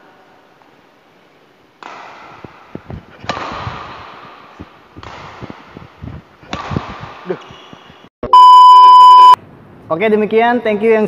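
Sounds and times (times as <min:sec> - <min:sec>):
racket hitting shuttlecock: 0:01.8 - 0:07.6.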